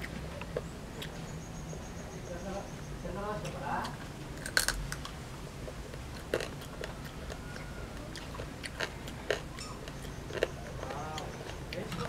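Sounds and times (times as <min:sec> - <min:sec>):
child chewing: 0:03.8 - 0:12.0
sharp food crunches: 0:04.4 - 0:05.1, 0:05.9 - 0:12.0.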